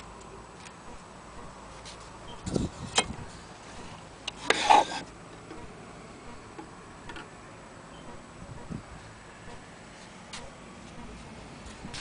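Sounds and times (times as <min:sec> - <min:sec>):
brief rub or scrape: 0:01.7 - 0:05.1.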